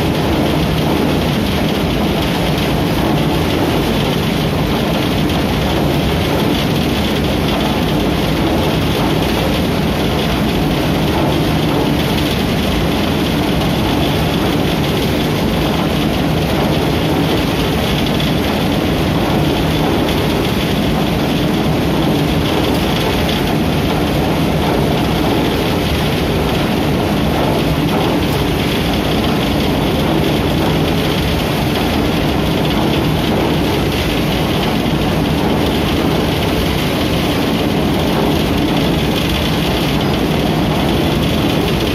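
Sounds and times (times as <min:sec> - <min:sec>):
threshing machine drone: 0:00.0 - 0:41.9.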